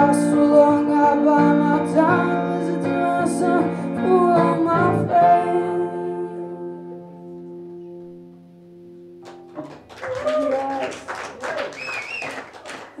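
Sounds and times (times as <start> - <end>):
audience applause: 9.2 - 13.0
audience cheers and whoops: 9.9 - 12.6.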